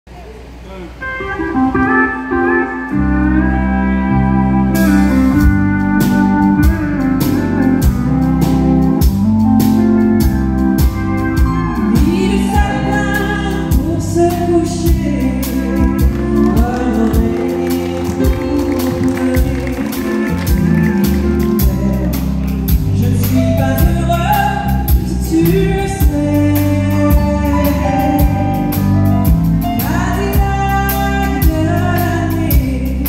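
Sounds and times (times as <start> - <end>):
country band playing: 1.0 - 33.0
drums beating: 4.8 - 32.8
woman singing: 11.7 - 28.4, 29.8 - 33.0.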